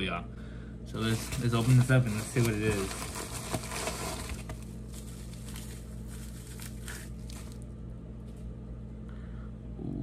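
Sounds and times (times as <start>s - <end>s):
steady low hum: 0.0s - 10.0s
packaging tearing and rustling: 1.0s - 7.7s.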